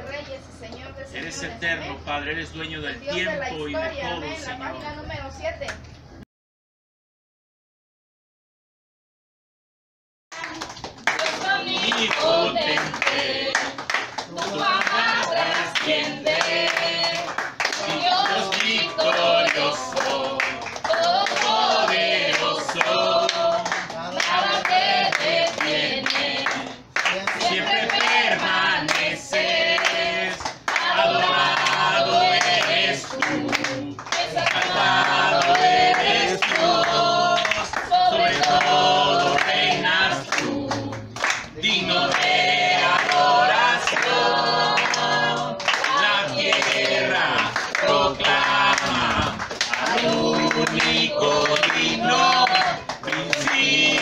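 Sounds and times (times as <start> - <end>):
rhythmic hand clapping: 10.3 - 54.0
congregation singing: 11.0 - 54.0.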